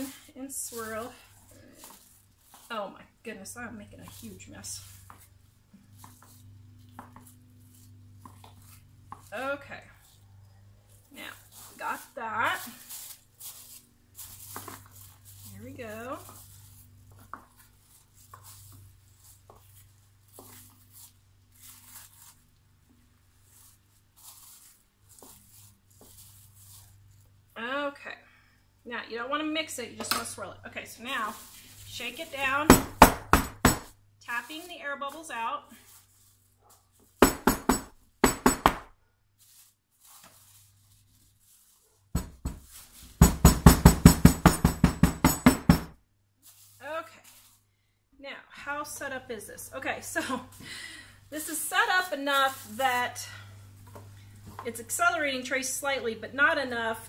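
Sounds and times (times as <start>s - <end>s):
wooden molds thudding on countertop: 32.6s - 33.9s, 37.2s - 38.9s, 42.2s - 45.9s.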